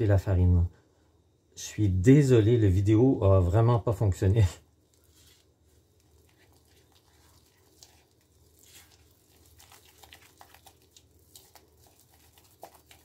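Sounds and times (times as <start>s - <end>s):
spatula stirring thick dough: 4.7s - 13.0s.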